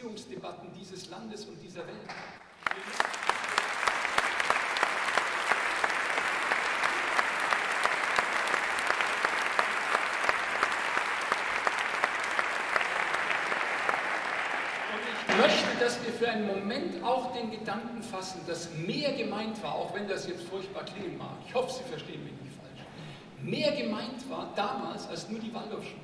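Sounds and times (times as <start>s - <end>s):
large audience applauding: 2.4s - 16.1s.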